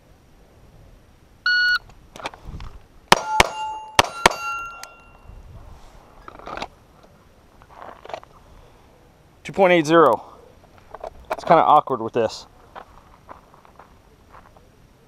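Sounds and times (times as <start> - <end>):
pistol shots: 3.1 - 5.0
steel targets ringing: 3.1 - 5.4.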